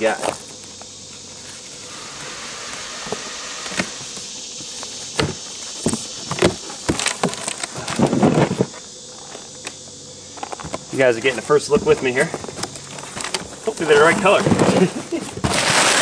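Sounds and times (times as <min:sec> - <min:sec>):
steady high hiss: 0:00.0 - 0:16.0
cardboard clicks and scrapes: 0:12.5 - 0:16.0
packing tape pulled: 0:15.5 - 0:16.0.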